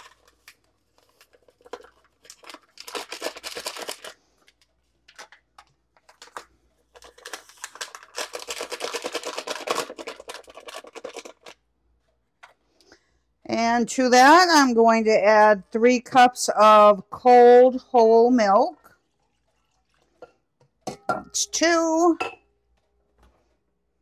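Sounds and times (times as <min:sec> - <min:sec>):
paper pouches crinkling: 0:00.0 - 0:11.6.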